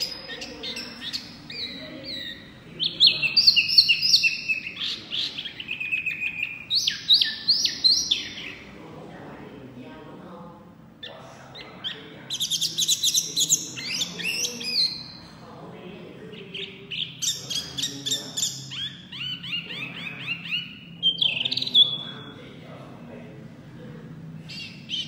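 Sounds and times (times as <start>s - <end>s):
bird singing whistled notes: 0.0s - 8.6s.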